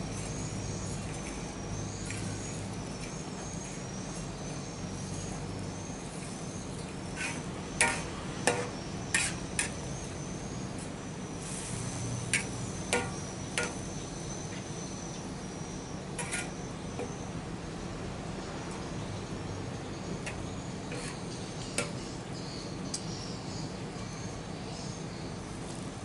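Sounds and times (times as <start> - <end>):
insect trill: 0.0 - 25.6
metal spatula scraping a wok: 7.1 - 9.8, 11.4 - 13.8, 16.2 - 16.6, 20.3 - 22.0.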